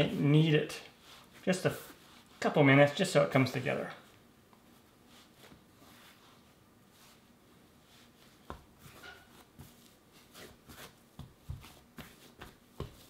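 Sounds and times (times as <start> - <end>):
hands rubbing dough: 0.0 - 13.0
dough thumping on countertop: 10.6 - 13.0.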